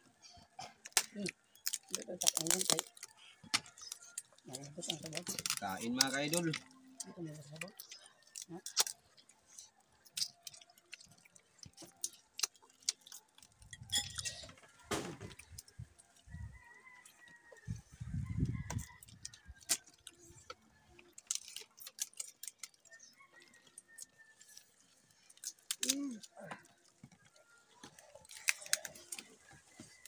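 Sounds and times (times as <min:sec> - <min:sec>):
crab shells cracking: 0:00.8 - 0:07.0, 0:07.6 - 0:15.8, 0:18.6 - 0:29.3.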